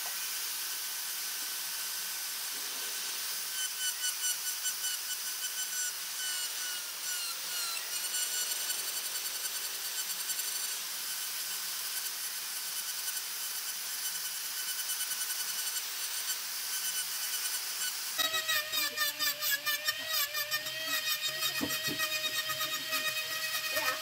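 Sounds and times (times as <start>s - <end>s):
rotary tool high whine: 0.0s - 24.0s
wood being abraded: 18.4s - 24.0s.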